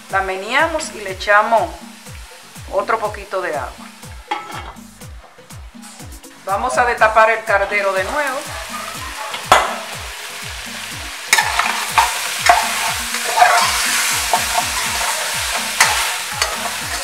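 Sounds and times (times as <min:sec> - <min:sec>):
meat sizzling in oil: 0:00.0 - 0:05.1, 0:07.4 - 0:17.0
spoon knocking against pot: 0:08.8 - 0:09.9, 0:11.3 - 0:17.0
metal spoon scraping pot: 0:11.4 - 0:17.0.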